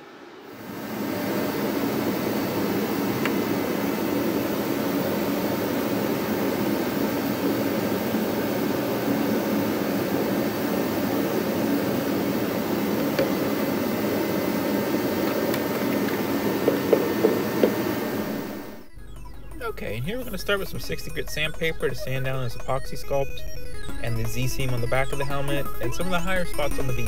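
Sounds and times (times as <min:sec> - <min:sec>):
electric blower motor running: 0:00.0 - 0:20.6.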